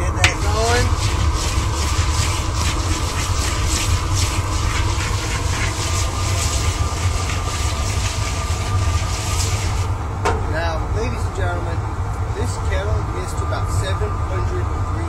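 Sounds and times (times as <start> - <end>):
kettle corn popping: 0.0 - 10.5
steady low rumble: 0.0 - 15.0
paddle scraping swish in kettle: 0.2 - 9.9.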